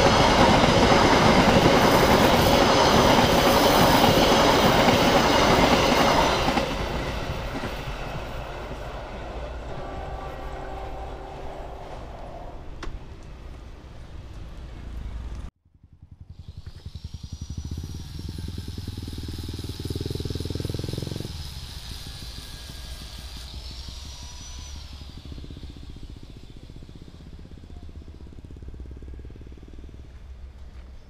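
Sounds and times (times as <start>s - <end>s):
thin high whine: 7.1s - 13.6s
motorcycle engine pulsing: 15.0s - 31.0s.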